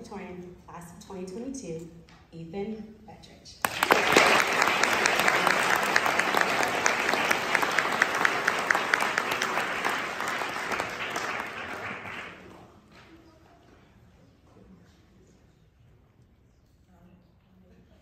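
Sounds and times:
audience applauding: 3.6s - 12.8s
hands clapping close by: 3.6s - 13.1s.

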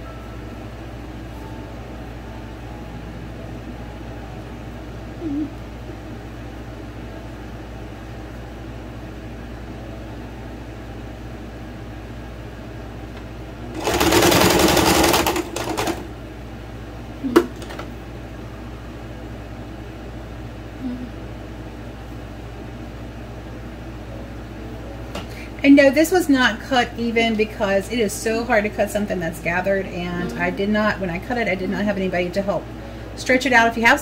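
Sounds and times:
electric sewing machine stitching: 13.7s - 16.1s.

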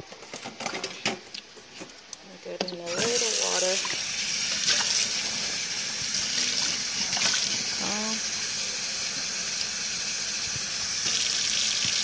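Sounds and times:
tap water filling pot in sink: 2.9s - 7.9s, 10.4s - 12.0s.

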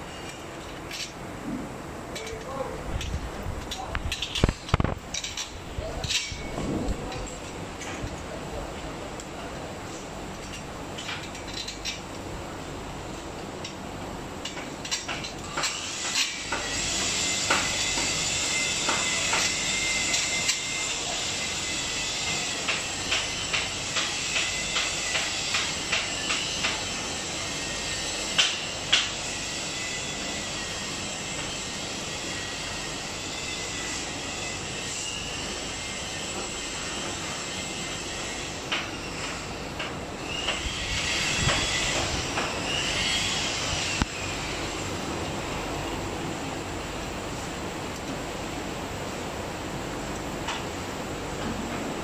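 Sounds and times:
steady background hiss: 0.0s - 52.0s
wrench clicking on metal fittings: 10.4s - 12.1s.

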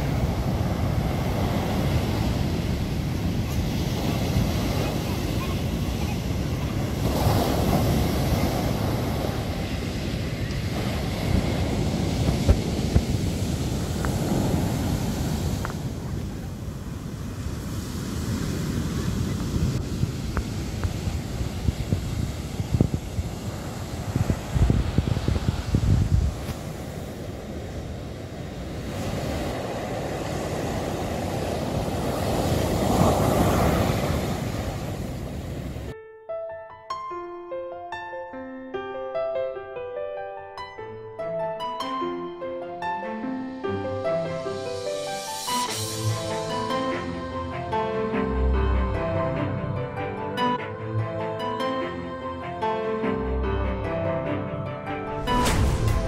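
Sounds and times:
wind rumbling on microphone: 0.0s - 35.9s, 55.1s - 56.0s
surf breaking on sandy beach: 0.0s - 36.0s, 55.1s - 56.0s.

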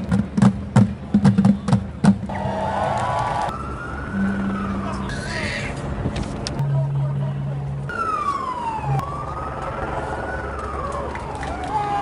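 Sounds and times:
drumbeats: 0.0s - 2.3s
siren wailing: 2.3s - 5.7s, 7.9s - 12.0s.

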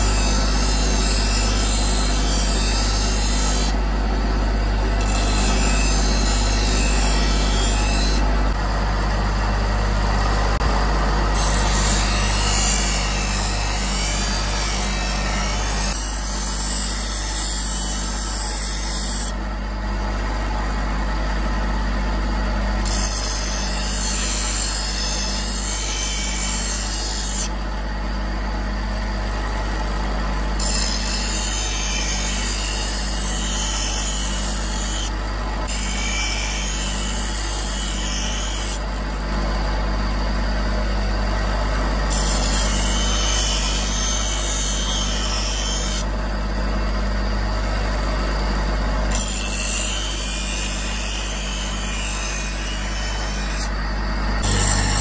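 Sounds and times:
bench grinder motor humming: 0.0s - 19.4s, 47.6s - 55.0s.

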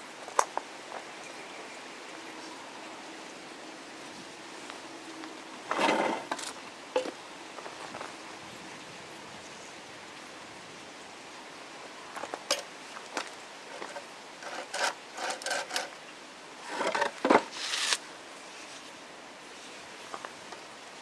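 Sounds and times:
saw blade scraping wood: 5.7s - 6.5s, 13.7s - 16.0s, 16.6s - 18.0s.

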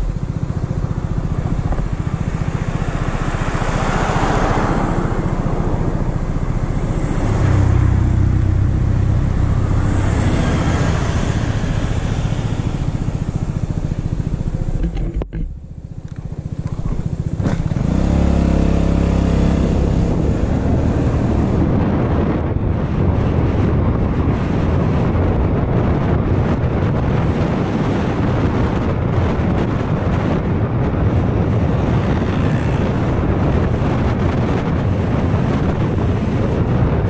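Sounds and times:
scooter engine idling and revving: 0.0s - 37.0s.

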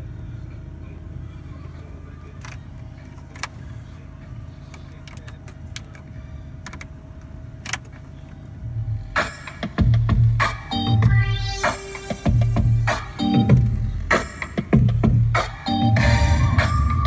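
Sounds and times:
car radio playing: 0.0s - 17.0s
truck engine idling: 0.0s - 17.0s
dashboard buttons clicking: 2.3s - 3.6s, 4.7s - 7.0s, 7.6s - 8.1s.

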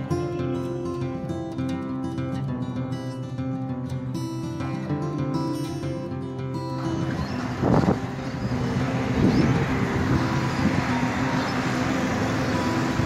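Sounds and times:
acoustic guitar music: 0.0s - 13.0s
road traffic: 4.3s - 13.0s.

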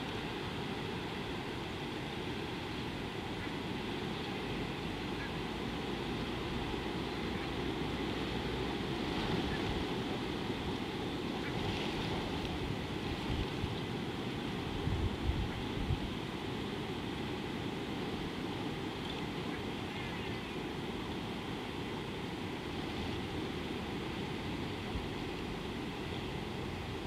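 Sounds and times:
constant hiss: 0.0s - 27.0s
wind rumbling on microphone: 5.7s - 20.6s.

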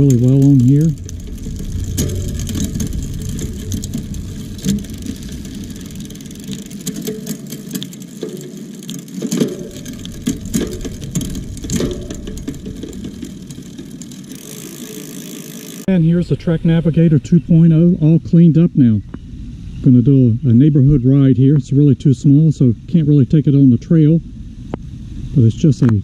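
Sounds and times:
gear shifting clicks: 0.0s - 15.9s
bicycle chain whirring: 0.0s - 17.8s.

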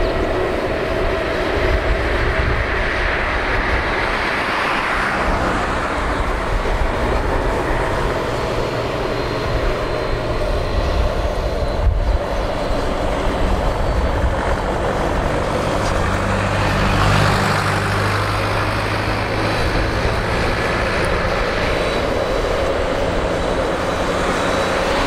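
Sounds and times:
faint high engine whine: 0.0s - 25.0s
jet engines roaring at taxi power: 0.0s - 25.0s.

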